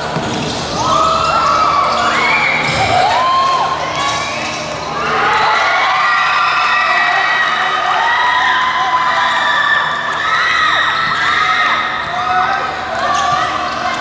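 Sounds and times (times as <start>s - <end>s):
shoes squeaking on hardwood court: 0.0s - 5.0s, 10.7s - 14.0s.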